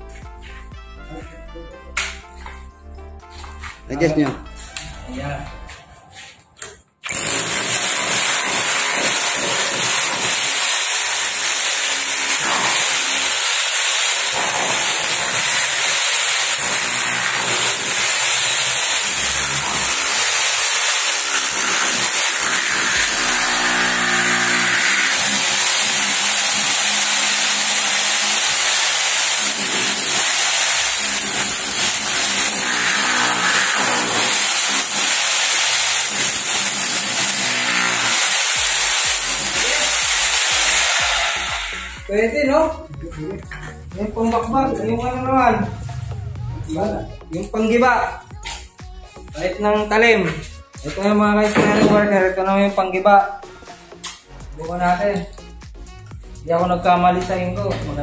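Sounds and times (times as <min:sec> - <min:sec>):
rotary hammer chipping concrete: 0:07.1 - 0:41.7.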